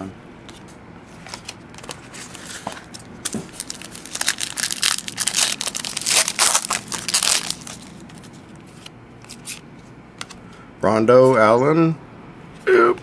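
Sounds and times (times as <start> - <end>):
wrapper crinkling: 1.8 - 8.3.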